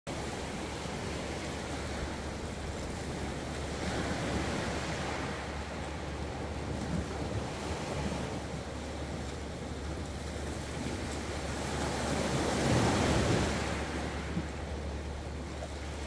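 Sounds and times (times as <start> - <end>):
waves washing on shingle beach: 0.1 - 16.0.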